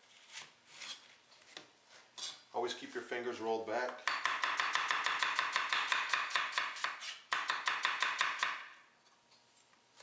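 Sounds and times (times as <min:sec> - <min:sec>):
knife tapping on wooden board: 0:04.0 - 0:06.7.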